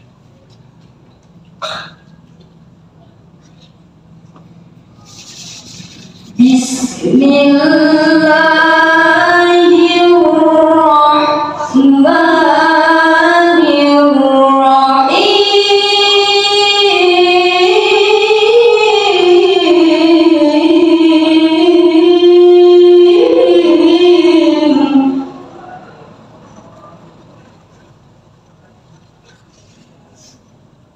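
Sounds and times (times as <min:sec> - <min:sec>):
girl reciting melodically: 0:06.4 - 0:25.6.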